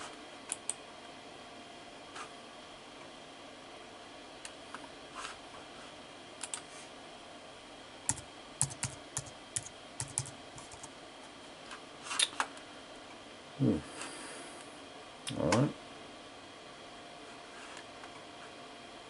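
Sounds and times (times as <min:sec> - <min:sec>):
computer keyboard typing: 0:08.1 - 0:10.9.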